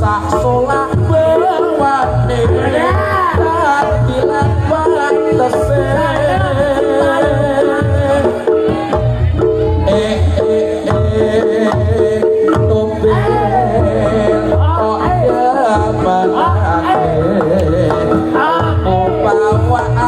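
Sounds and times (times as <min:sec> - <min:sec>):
reed-pipe melody: 0:00.0 - 0:20.0.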